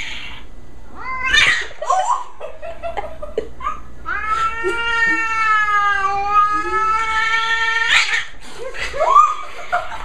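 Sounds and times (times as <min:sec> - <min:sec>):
cat meowing and yowling: 0:01.0 - 0:01.8, 0:04.1 - 0:08.3.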